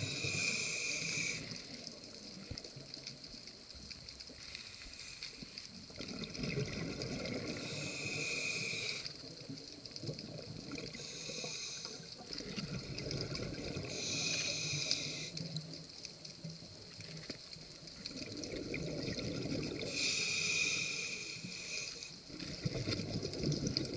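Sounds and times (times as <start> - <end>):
regulator inhalation hiss: 0.0 - 2.0, 4.3 - 5.8, 7.4 - 9.4, 10.8 - 12.4, 13.8 - 15.9, 19.8 - 22.3
bubbling exhalations: 6.0 - 7.8, 18.1 - 20.0.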